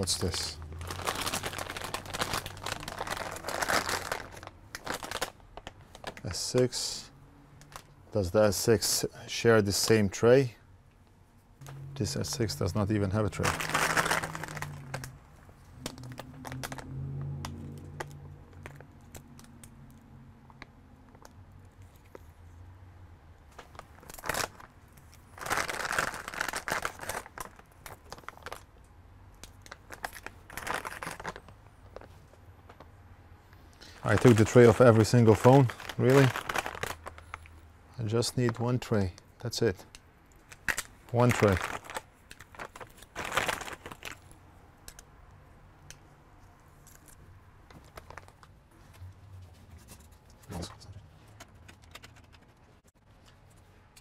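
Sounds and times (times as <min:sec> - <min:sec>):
plastic bag crinkling: 0:00.0 - 0:06.4, 0:12.0 - 0:16.9, 0:23.6 - 0:28.7, 0:29.4 - 0:32.3, 0:33.8 - 0:37.6, 0:40.4 - 0:44.4, 0:46.8 - 0:48.5.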